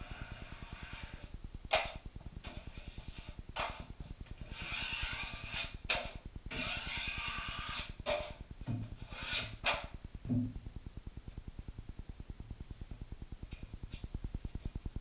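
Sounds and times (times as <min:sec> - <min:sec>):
drywall knife scraping: 0:00.0 - 0:10.0.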